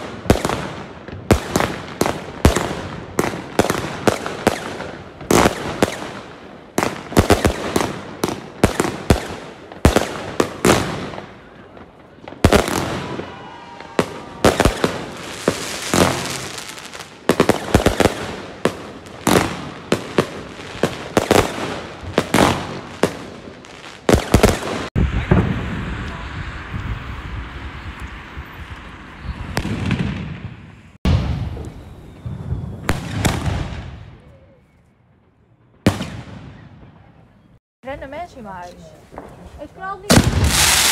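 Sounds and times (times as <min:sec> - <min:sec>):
fireworks crackling: 0:00.0 - 0:34.5, 0:37.8 - 0:40.9
fireworks bangs: 0:00.0 - 0:40.9
firework whistle: 0:12.6 - 0:18.3, 0:31.1 - 0:37.1.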